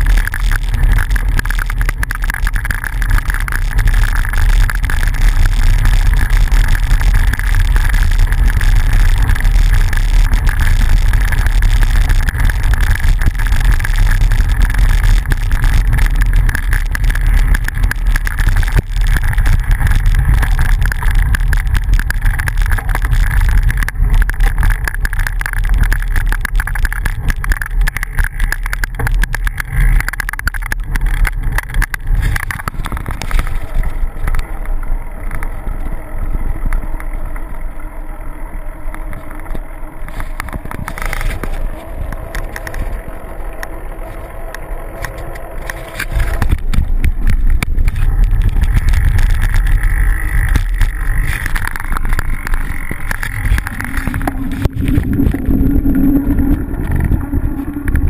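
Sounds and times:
bicycle tyres rolling on dirt: 0.0s - 58.0s
wind buffeting microphone: 39.2s - 58.0s.

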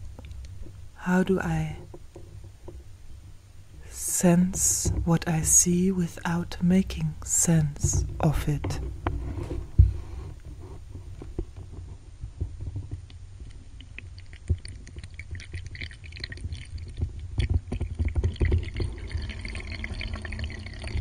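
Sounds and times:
small irregular clicks and crackles: 0.0s - 1.0s, 8.7s - 21.0s.

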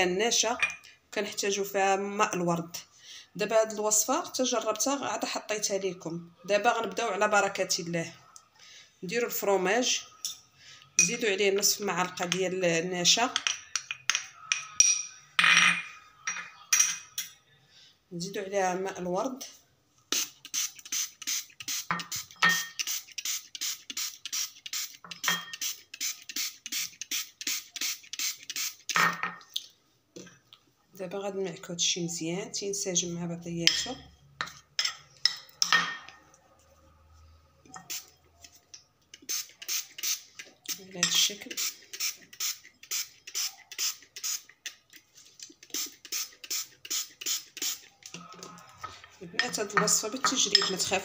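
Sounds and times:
spray bottle spraying: 20.1s - 29.0s, 39.2s - 40.8s, 41.5s - 44.5s, 45.6s - 47.9s
metal spoon scraping ceramic bowl: 48.8s - 51.0s.

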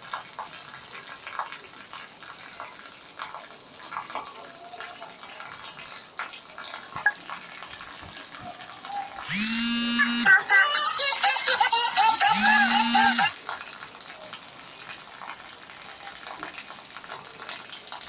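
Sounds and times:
heavy rain on concrete street: 0.0s - 9.3s, 13.3s - 18.0s
loud held pitched tone: 9.3s - 10.4s, 12.2s - 13.3s.

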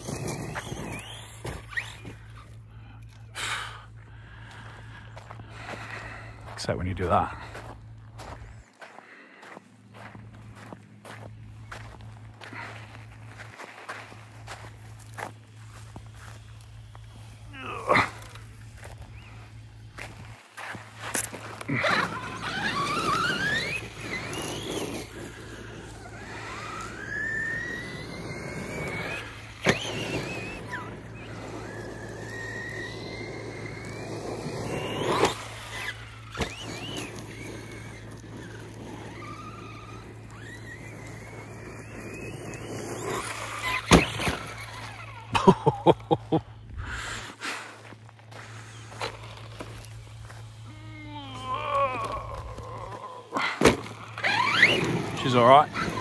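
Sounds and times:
electric motor whining: 0.0s - 8.7s, 9.9s - 56.0s.

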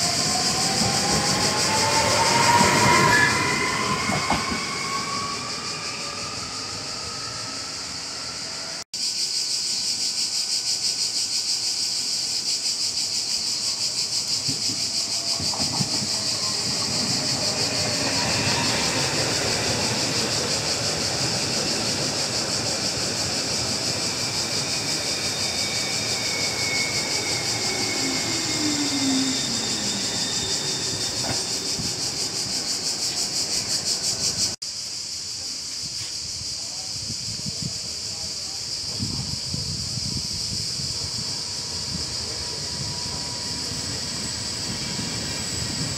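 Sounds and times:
train whine falling in pitch: 0.0s - 8.8s, 14.4s - 34.5s
train wheels rumbling on track: 0.0s - 34.6s, 35.2s - 45.9s
high buzz of insects: 0.0s - 45.9s.

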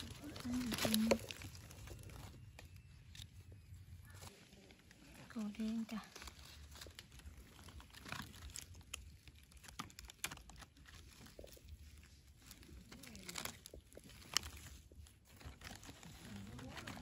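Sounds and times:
hand rustling through leaf litter: 0.0s - 17.0s.

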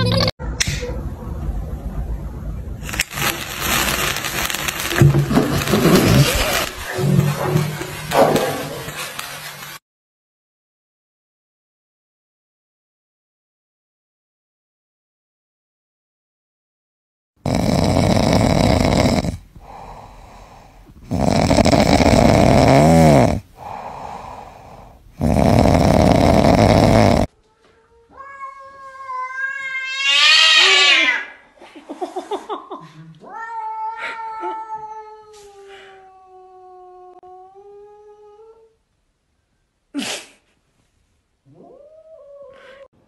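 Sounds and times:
cat snoring: 3.1s - 7.3s, 17.4s - 27.3s
cat yowling: 28.1s - 31.4s.

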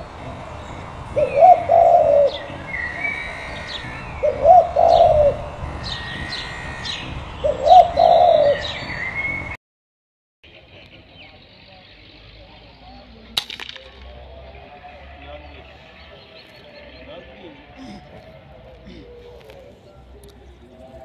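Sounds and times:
dove cooing: 0.0s - 9.4s, 17.8s - 21.0s
small birds chirping: 0.0s - 9.6s, 10.4s - 13.4s.

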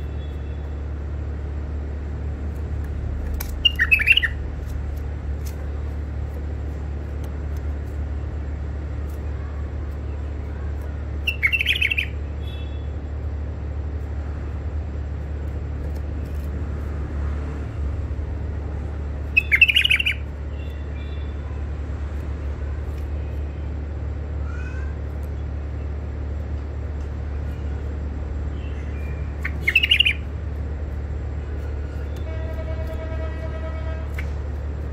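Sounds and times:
steady low hum: 0.0s - 34.9s
bird chirping: 3.5s - 4.4s, 11.2s - 12.9s, 19.2s - 21.4s, 28.5s - 30.4s.

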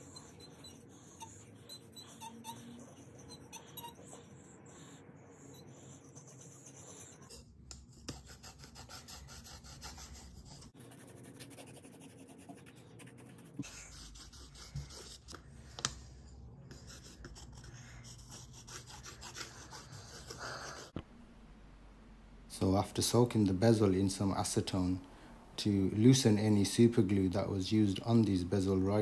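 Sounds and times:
tweezers scratching on sharpening stone: 0.0s - 4.2s.

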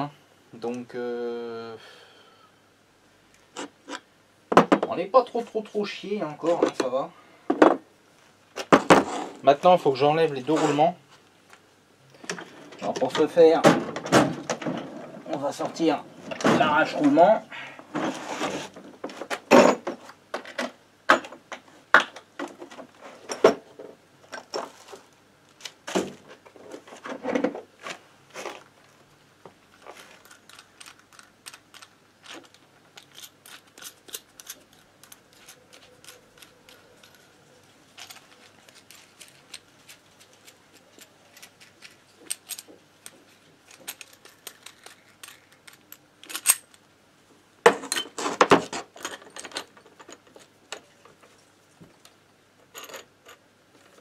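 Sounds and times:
metal tool parts clinking: 29.8s - 46.8s, 47.8s - 51.4s.

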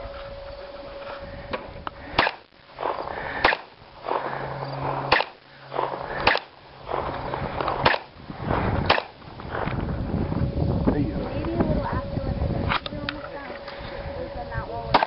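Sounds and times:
pistol shots: 2.1s - 7.1s, 7.7s - 8.2s, 8.8s - 9.2s.

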